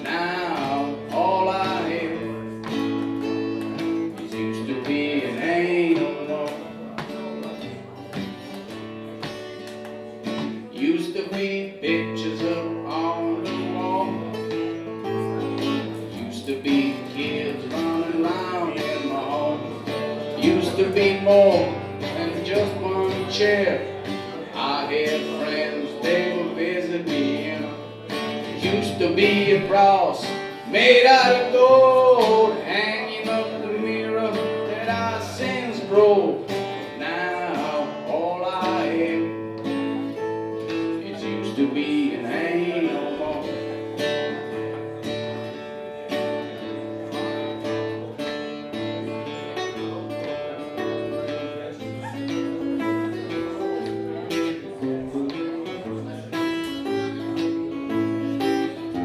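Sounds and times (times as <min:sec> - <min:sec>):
man singing: 0:00.0 - 0:09.2, 0:10.2 - 0:46.8
strummed acoustic guitar: 0:00.0 - 0:59.0.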